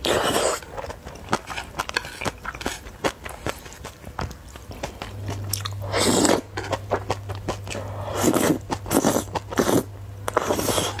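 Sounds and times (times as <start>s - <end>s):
slurping noodles: 0.0s - 2.9s, 5.6s - 6.8s, 7.6s - 11.0s
wet chewing: 0.0s - 11.0s.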